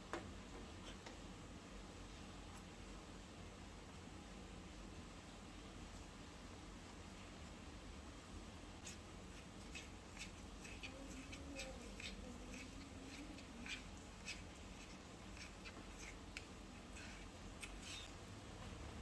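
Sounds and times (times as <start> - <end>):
utensil scraping metal bowl: 8.8 - 18.1.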